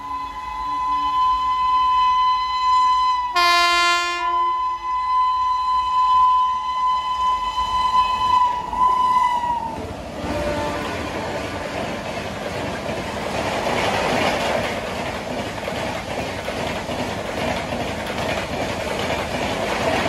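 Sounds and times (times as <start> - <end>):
locomotive horn blast: 0.0 - 8.6, 10.2 - 11.4
rush of passing train: 0.0 - 20.0.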